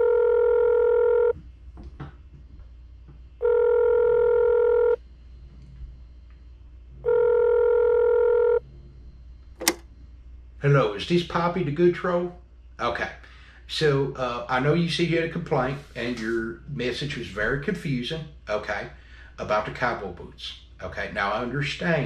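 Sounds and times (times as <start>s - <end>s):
telephone ringback beeps: 0.0s - 1.3s, 3.4s - 5.0s, 7.0s - 8.6s.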